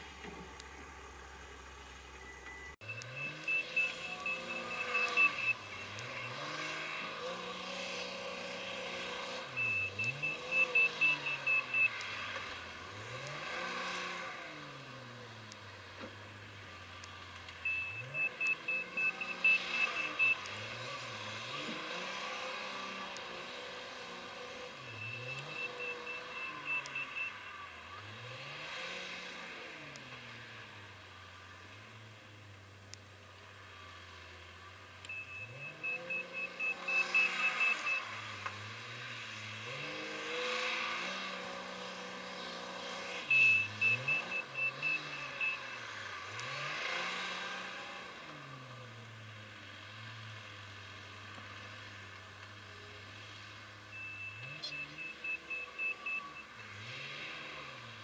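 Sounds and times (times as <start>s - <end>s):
diesel engine revving: 0.0s - 31.2s, 33.5s - 58.0s
reversing alarm beeps: 2.2s - 7.1s, 8.0s - 12.2s, 17.6s - 21.8s, 24.8s - 27.6s, 35.1s - 38.2s, 43.2s - 45.9s, 53.9s - 57.0s.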